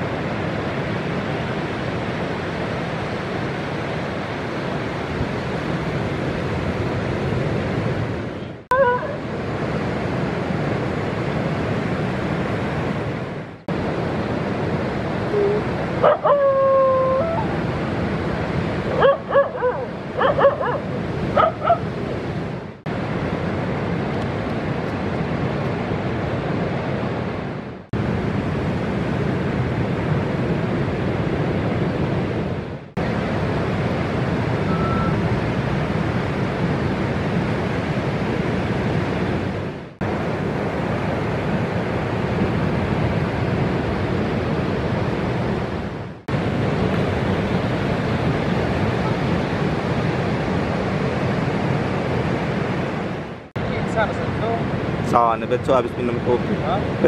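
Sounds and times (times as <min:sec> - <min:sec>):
dog yelping and whining: 0:15.4 - 0:17.6.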